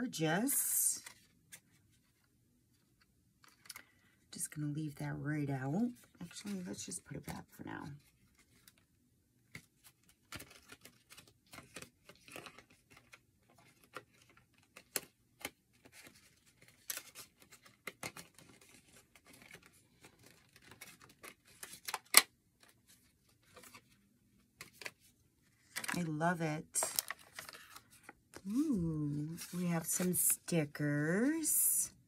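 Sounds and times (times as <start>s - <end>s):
plastic packaging rustling: 24.6s - 30.5s.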